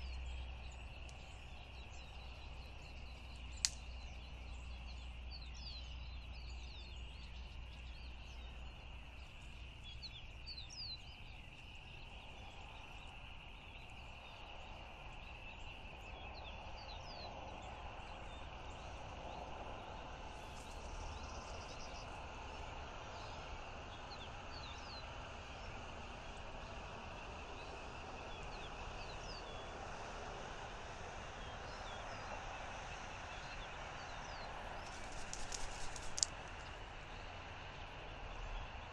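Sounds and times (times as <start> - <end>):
small birds chirping: 0.0 - 38.9
steady hiss: 29.8 - 38.9.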